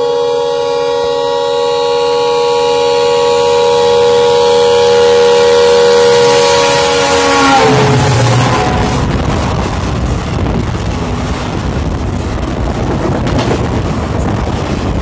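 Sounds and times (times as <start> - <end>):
locomotive horn blast: 0.0 - 10.5
rush of passing train: 0.0 - 15.0.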